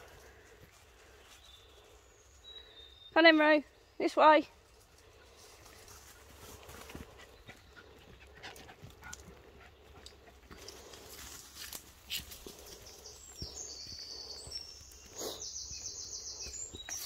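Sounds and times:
footsteps on muddy path: 4.8 - 17.0
dog panting: 6.9 - 11.0.

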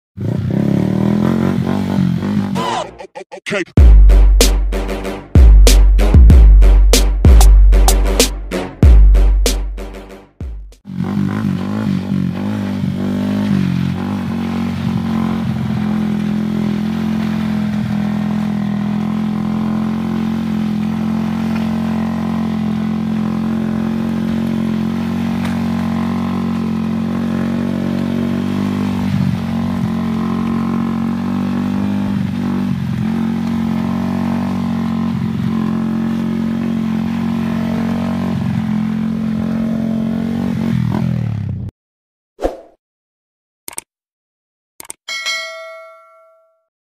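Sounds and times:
motorcycle engine at steady revs: 0.2 - 2.6, 10.8 - 41.7.

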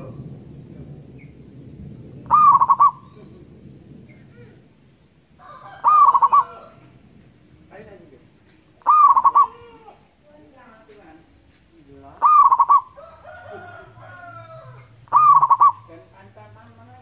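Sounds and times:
dove cooing: 2.2 - 4.7, 5.4 - 7.0, 8.8 - 10.0, 12.1 - 16.1
faint bird chirps: 8.8 - 9.7, 12.2 - 13.2.

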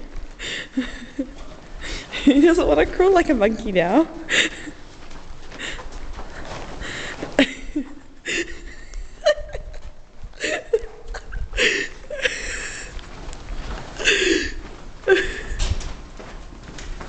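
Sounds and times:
people laughing and snickering: 4.2 - 13.0.

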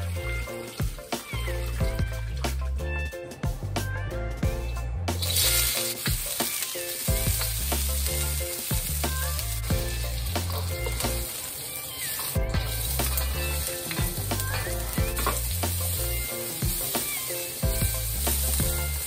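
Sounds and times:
spatula scraping wok: 5.2 - 19.0
vegetables sizzling in hot oil: 5.2 - 19.0.

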